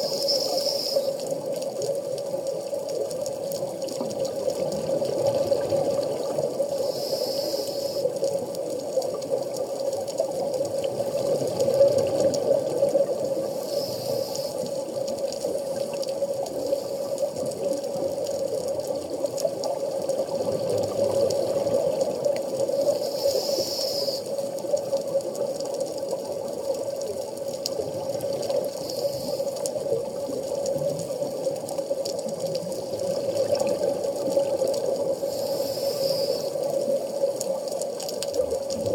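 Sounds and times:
scuba regulator hiss: 0.0s - 1.4s, 6.7s - 8.2s, 13.4s - 14.8s, 22.7s - 24.4s, 28.8s - 29.6s, 35.2s - 36.8s
muffled underwater rush: 0.0s - 38.9s.

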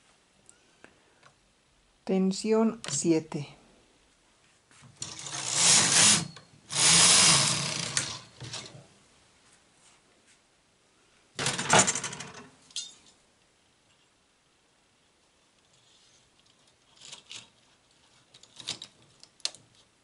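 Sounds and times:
knitting machine carriage rattling: 5.0s - 8.8s.

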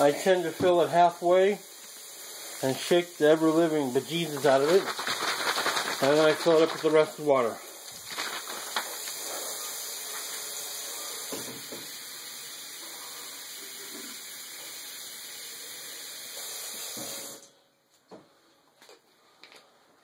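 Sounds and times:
tap water filling a bottle: 0.5s - 1.0s, 11.2s - 12.2s.

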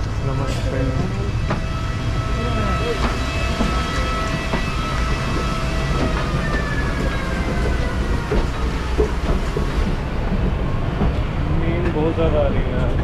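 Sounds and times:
faint high whining tones: 0.0s - 9.8s
airliner cabin rumble: 0.0s - 13.0s.

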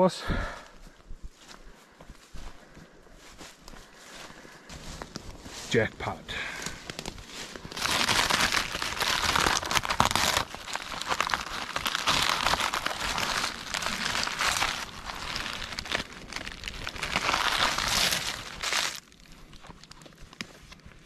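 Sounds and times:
birch bark being peeled and torn: 6.0s - 21.0s.

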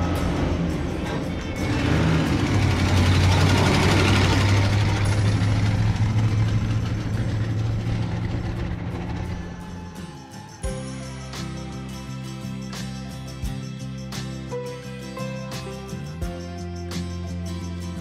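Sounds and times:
truck engine driving past: 0.0s - 10.5s.

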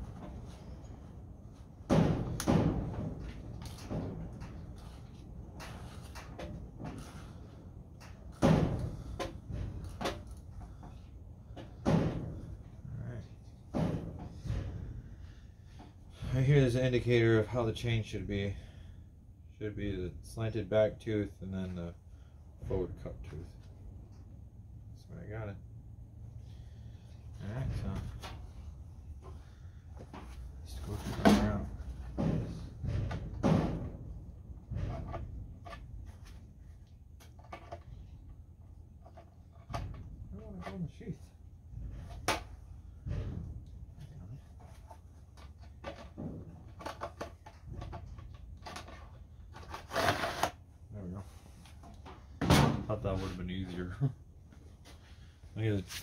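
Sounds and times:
hard clunks and knocks: 1.8s - 4.8s, 8.1s - 10.9s, 11.5s - 12.8s, 13.6s - 16.3s, 31.0s - 36.3s, 41.7s - 44.0s, 52.0s - 53.0s
heavy door-like bangs: 1.9s - 3.2s, 52.4s - 53.0s.

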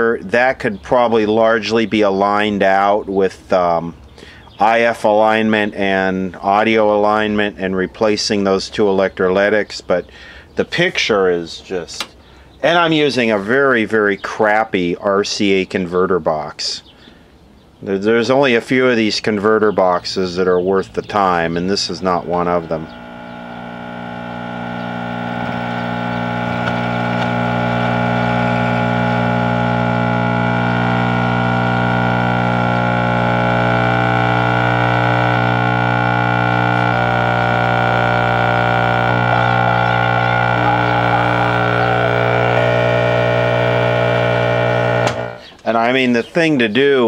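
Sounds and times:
television speaker buzz: 19.8s - 45.5s.

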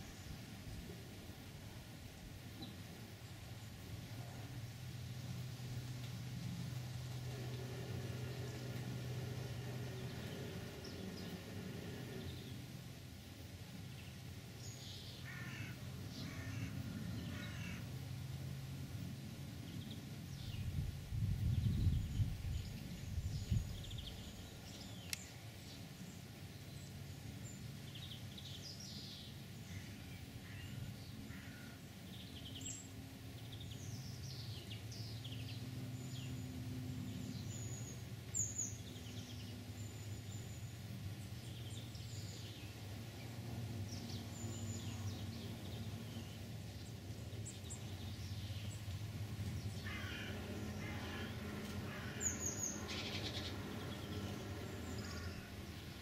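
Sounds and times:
low hum: 0.0s - 14.8s, 32.1s - 56.0s
birds chirping: 6.8s - 13.0s, 21.5s - 56.0s.

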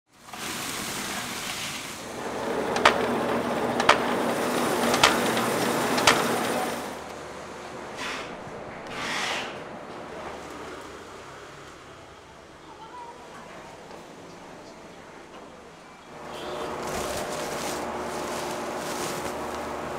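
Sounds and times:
fried dough pouring clatter: 0.1s - 7.0s
dough cutting machine humming: 2.0s - 8.0s, 16.1s - 19.9s
sharp knocks: 2.5s - 6.8s
soft dough rustles: 16.7s - 19.9s.

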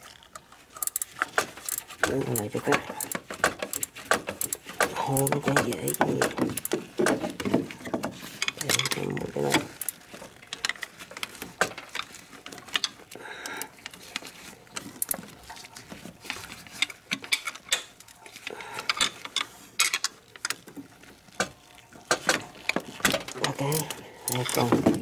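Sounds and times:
hand ratchet clicking: 0.8s - 6.8s.

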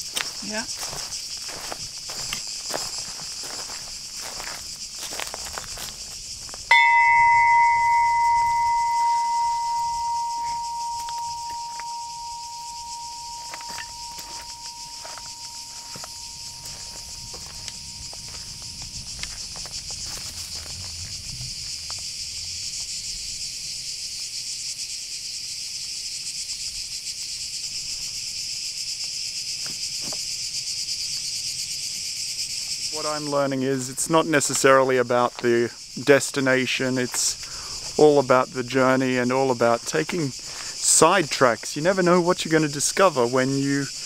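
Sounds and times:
insects shrilling: 0.0s - 44.0s
small bell ringing: 6.7s - 19.0s.

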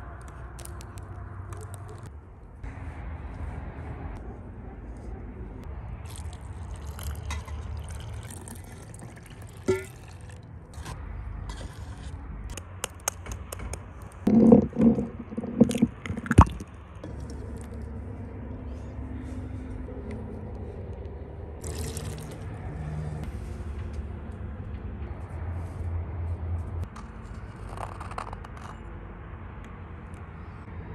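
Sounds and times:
low outdoor rumble: 0.0s - 30.9s
water pouring and splashing: 6.0s - 10.4s, 21.6s - 22.6s
clinks and knocks: 13.0s - 16.4s
hands scraping metal bowl: 14.3s - 16.4s.

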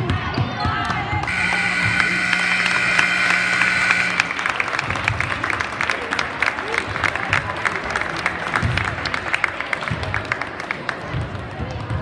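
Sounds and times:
people clapping: 0.6s - 12.0s
scoreboard buzzer: 1.3s - 5.2s.

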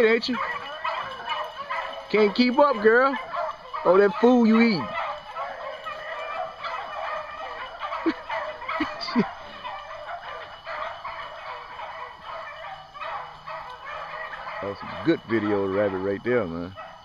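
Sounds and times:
pack of dogs baying: 0.0s - 17.0s.

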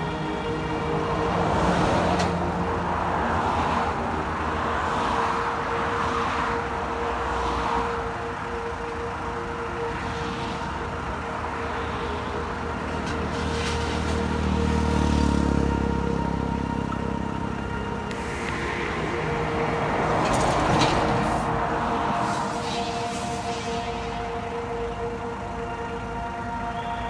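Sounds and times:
diesel engine humming: 0.0s - 27.0s
road traffic passing: 0.0s - 27.0s
deep rumble: 16.5s - 26.6s.

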